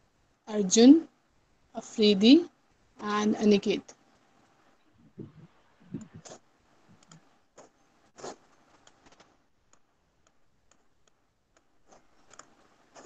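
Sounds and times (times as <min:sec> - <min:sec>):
faint computer clicks: 0:07.0 - 0:07.7.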